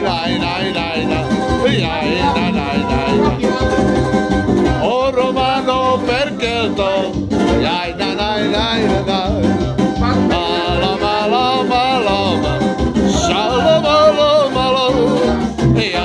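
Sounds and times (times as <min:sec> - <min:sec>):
man singing: 0:00.0 - 0:16.0
mandolin picking: 0:01.4 - 0:04.4.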